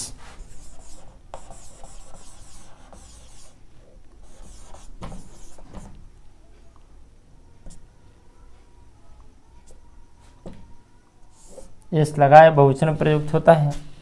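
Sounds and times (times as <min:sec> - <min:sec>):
marker scratching on whiteboard: 0:00.1 - 0:06.0, 0:11.3 - 0:11.8.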